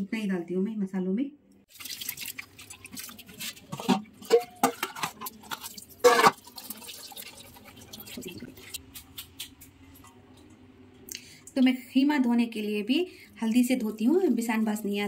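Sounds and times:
water splashing and dripping: 0:01.7 - 0:10.6.

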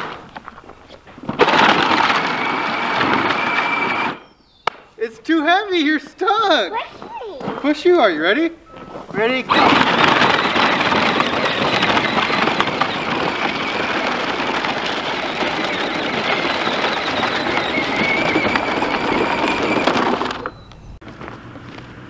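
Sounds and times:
plastic wheels crunching on gravel: 0:00.0 - 0:04.3, 0:07.0 - 0:22.0
faint electric motor whine: 0:02.0 - 0:04.2.

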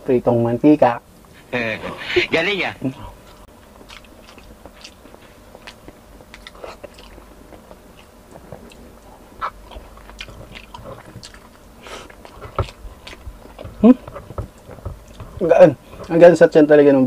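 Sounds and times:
man chewing food: 0:02.9 - 0:16.3.

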